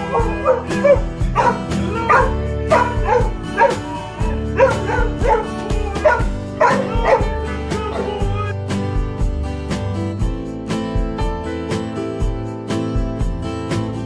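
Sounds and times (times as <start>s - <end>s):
dog whining and yipping: 0.0s - 8.6s
background music with steady beat: 0.0s - 14.0s.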